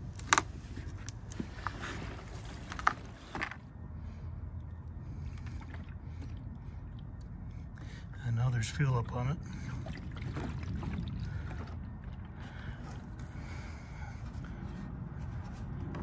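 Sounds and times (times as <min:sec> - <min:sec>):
low background rumble: 0:00.0 - 0:16.0
fuel sloshing in plastic tank: 0:05.0 - 0:08.0, 0:09.4 - 0:16.0.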